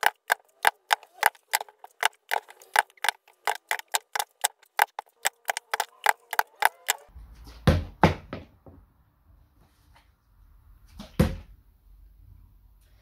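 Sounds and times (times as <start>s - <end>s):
rapid even ticking: 0.0s - 7.1s.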